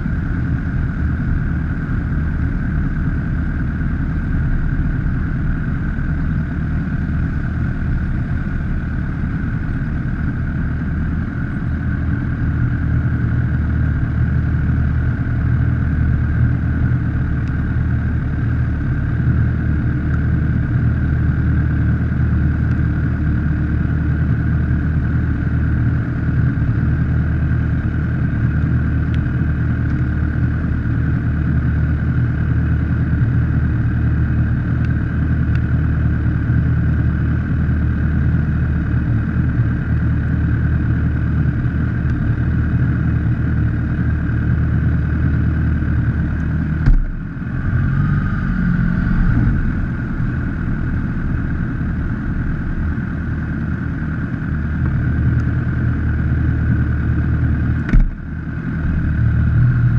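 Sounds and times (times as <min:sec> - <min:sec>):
motorcycle engine idling: 0:00.0 - 0:59.9
sharp knock: 0:46.8 - 0:47.2, 0:57.9 - 0:58.2.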